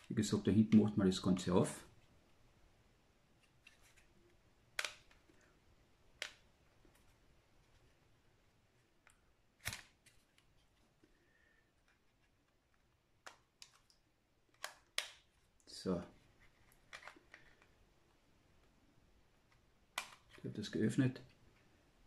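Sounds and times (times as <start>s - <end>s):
sharp plastic clicks: 4.8s - 5.3s.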